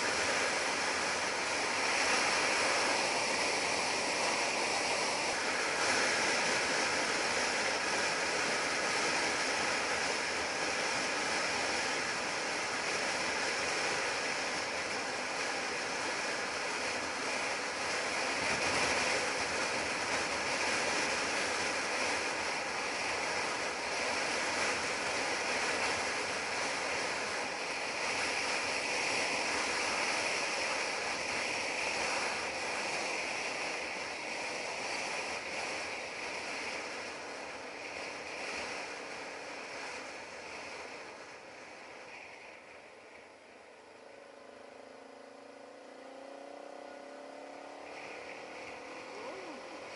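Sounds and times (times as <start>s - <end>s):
tyre noise on road: 0.0s - 49.9s
wind rushing over microphone: 0.0s - 49.9s
motorcycle engine: 44.2s - 49.9s.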